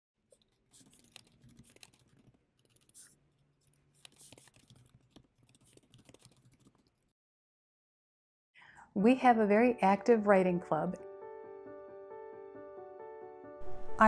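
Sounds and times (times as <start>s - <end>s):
computer keyboard typing: 0.4s - 3.1s, 3.9s - 7.0s.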